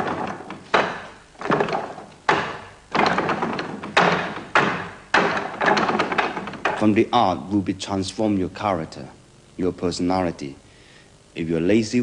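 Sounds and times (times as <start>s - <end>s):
knocking on wooden dummy: 0.0s - 6.9s.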